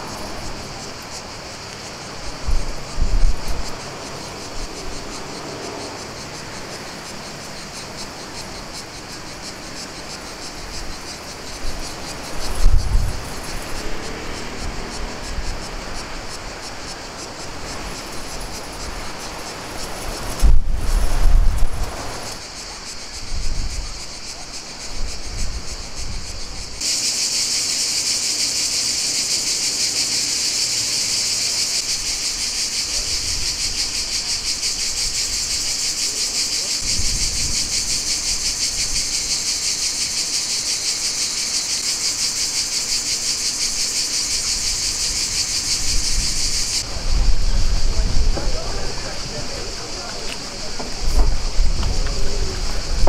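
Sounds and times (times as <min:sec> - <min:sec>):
wind rumble on microphone: 0:00.0 - 0:05.8, 0:10.5 - 0:26.8, 0:36.8 - 0:39.3, 0:44.3 - 0:53.0
cicadas buzzing: 0:00.0 - 0:53.0.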